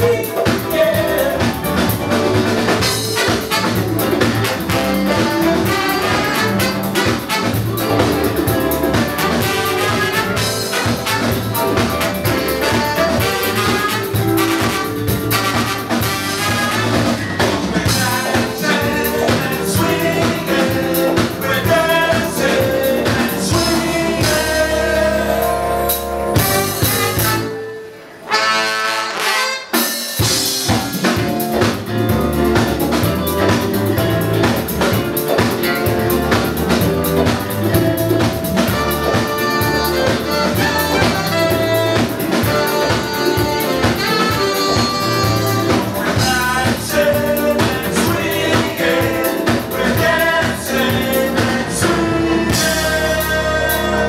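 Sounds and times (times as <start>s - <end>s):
jazz-funk band playing: 0.0s - 54.0s
voices singing together: 17.7s - 25.9s, 42.4s - 54.0s.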